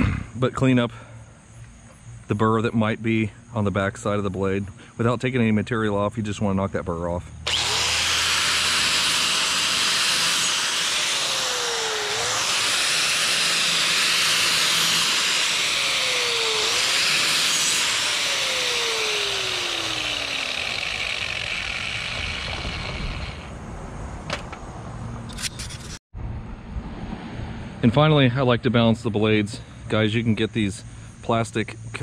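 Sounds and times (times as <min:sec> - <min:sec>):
angle grinder grinding steel: 0:07.5 - 0:23.6.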